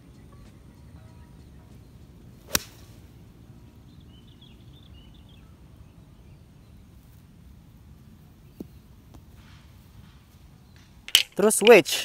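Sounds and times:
low outdoor background: 0.0 - 12.0
birds chirping faintly: 0.1 - 11.8
golf club striking ball: 2.4 - 2.9.

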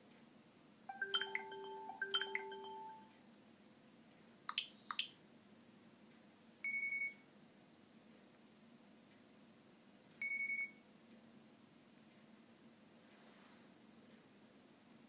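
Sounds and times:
two-part electronic chime: 0.9 - 3.1
quick sweeping blips: 4.5 - 5.2.

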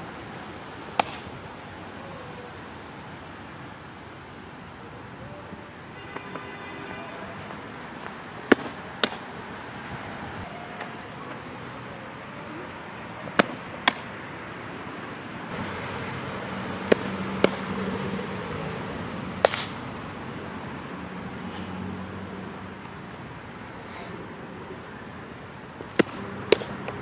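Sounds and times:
ball smacking into mitt: 1.0 - 1.3, 7.4 - 9.3, 13.3 - 14.1, 16.8 - 17.7, 19.4 - 19.8, 25.8 - 27.0.

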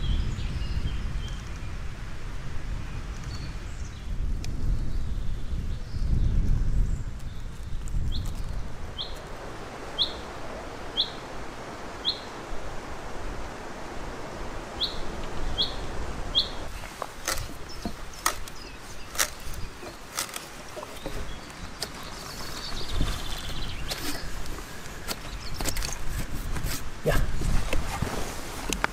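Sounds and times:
outdoor hiss: 8.6 - 28.9.

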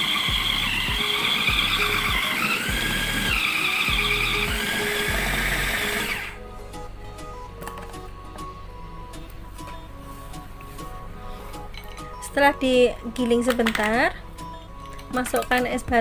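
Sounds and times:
food processor motor whirring: 0.0 - 6.4.

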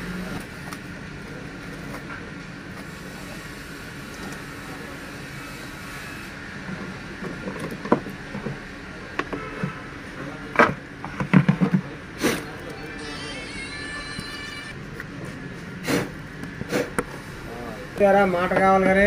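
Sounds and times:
steady background hum: 0.0 - 19.0.

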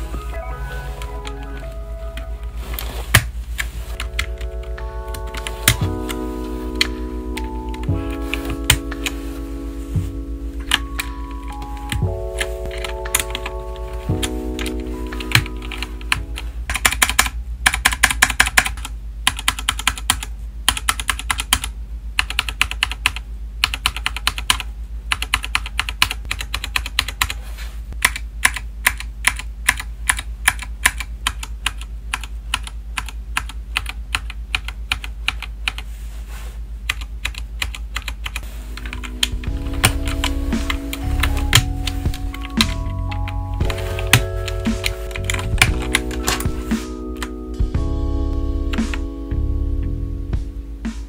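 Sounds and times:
mechanical keyboard keystrokes clacking: 4.0 - 6.2, 10.6 - 13.5, 14.2 - 27.4, 28.0 - 35.8, 36.9 - 46.6.

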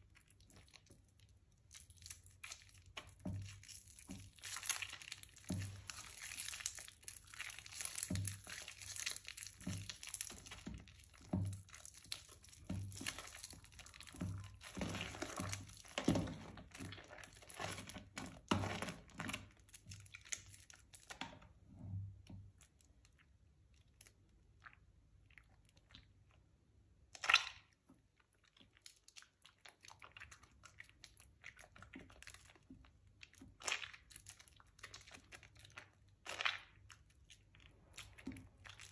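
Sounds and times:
wet soap squishing and crunching: 0.0 - 38.9.

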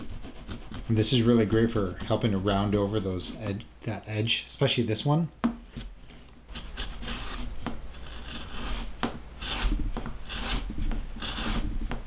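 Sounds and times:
hand plane scraping leather edge: 0.0 - 2.4, 6.5 - 12.0.

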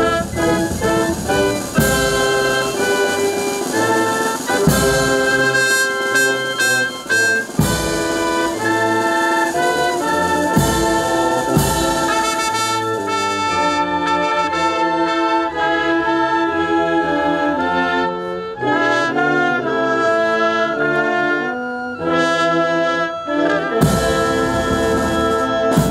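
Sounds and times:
drum strokes: 0.0 - 13.9
brass band playing: 0.0 - 25.9.

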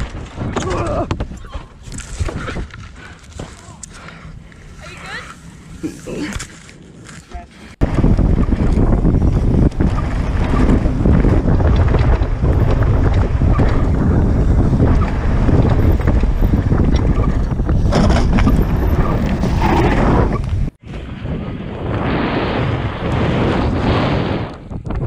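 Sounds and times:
bike tyres and frame rattling: 0.0 - 20.8
wind buffeting microphone: 7.7 - 25.0.

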